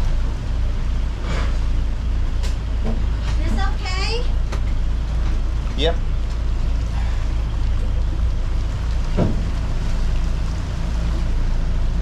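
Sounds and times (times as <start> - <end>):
boat engine running: 0.0 - 12.0.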